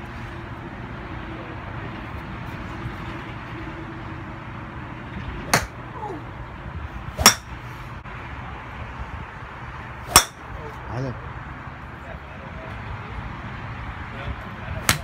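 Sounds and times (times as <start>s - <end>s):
steady low hum: 0.0s - 14.0s
golf club striking ball: 5.5s - 5.8s, 7.2s - 7.6s, 10.1s - 10.5s.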